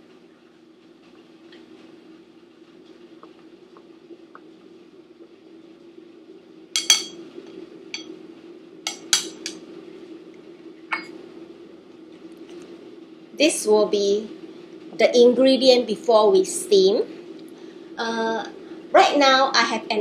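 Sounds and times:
steady low hum: 0.0s - 20.0s
chopsticks stirring egg in bowl: 6.8s - 7.1s.

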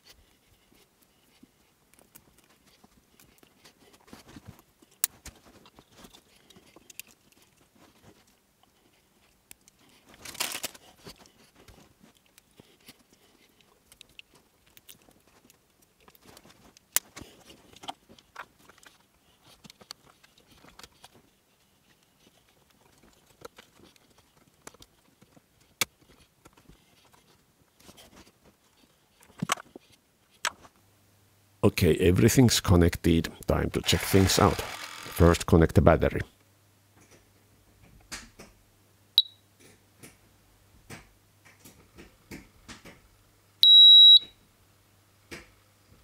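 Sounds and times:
wires rustling: 0.0s - 30.7s.

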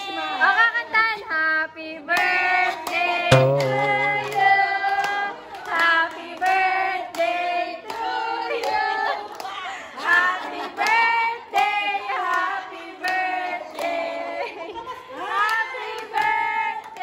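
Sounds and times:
sharp knock: 3.3s - 4.6s.

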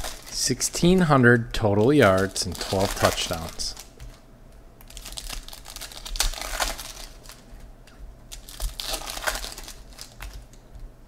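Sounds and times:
foil wrapper crinkling and tearing: 0.0s - 1.0s, 1.7s - 4.2s, 4.8s - 7.4s, 8.3s - 10.6s.

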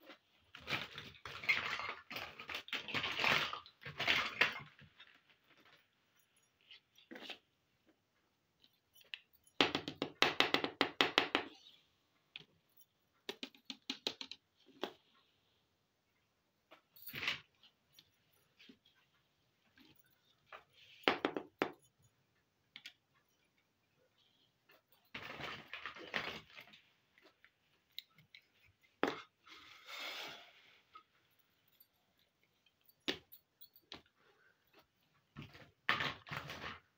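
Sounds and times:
plastic toy pieces clattering: 0.4s - 5.8s, 25.0s - 26.8s.

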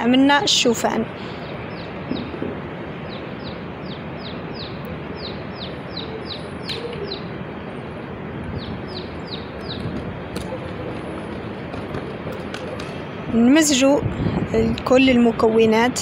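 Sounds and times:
bird chirping: 1.2s - 12.9s.

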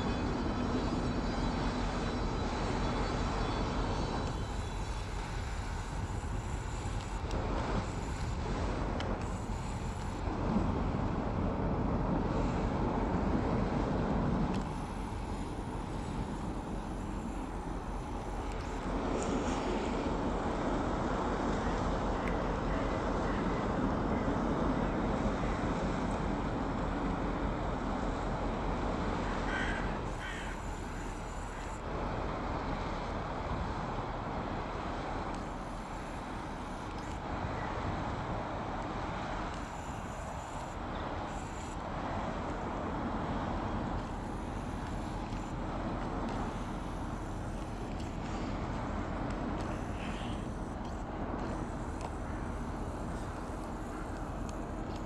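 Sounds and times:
ship low rumble: 0.0s - 55.0s
crow cawing: 29.5s - 30.8s.

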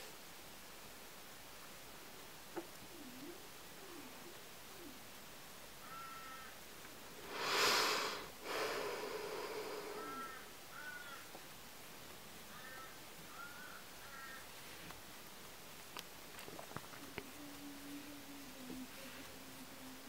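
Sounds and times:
person sighing: 7.2s - 10.4s.

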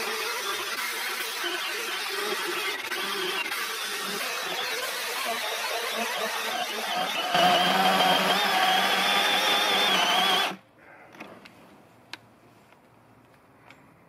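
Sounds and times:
chainsaw cutting log: 0.0s - 10.6s.

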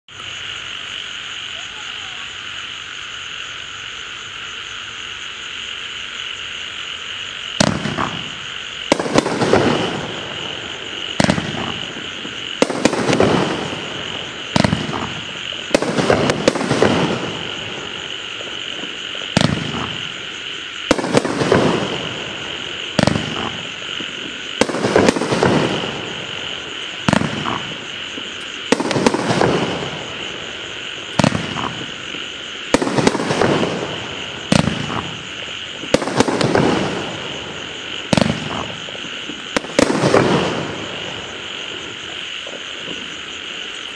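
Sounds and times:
firework bangs: 7.4s - 43.9s.

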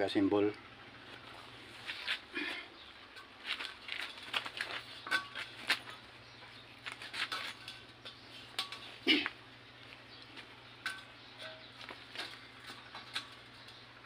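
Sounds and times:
steel tank clinking and knocking: 3.1s - 6.0s, 10.8s - 13.8s.

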